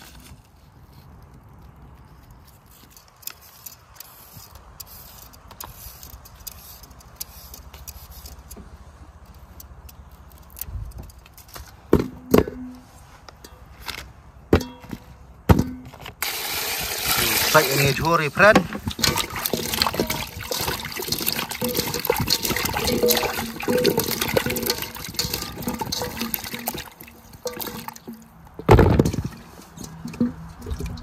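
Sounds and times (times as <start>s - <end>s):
ringing cookware knocks: 14.6s - 15.0s
kitchen utensils clinking: 16.3s - 28.4s.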